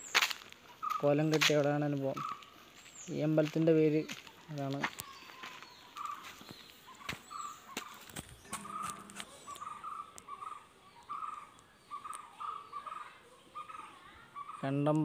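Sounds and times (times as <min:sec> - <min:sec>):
bird giving harsh calls: 0:02.1 - 0:02.5, 0:05.0 - 0:14.8.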